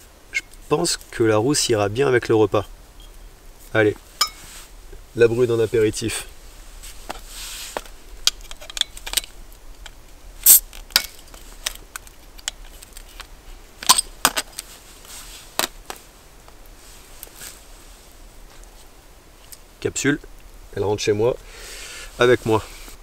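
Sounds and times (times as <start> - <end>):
bottle cap prised off with opener: 10.4 - 11.2.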